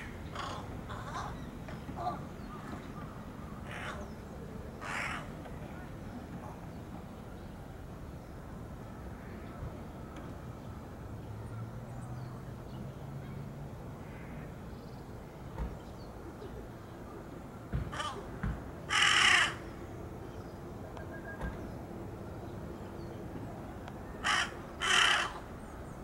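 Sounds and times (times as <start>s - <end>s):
faint crow call: 0.0s - 6.6s, 14.0s - 14.8s, 17.7s - 20.0s, 24.0s - 25.7s
crow cawing: 0.3s - 1.4s, 3.6s - 4.1s, 4.8s - 5.3s, 17.9s - 18.3s, 18.9s - 19.7s, 24.2s - 25.4s.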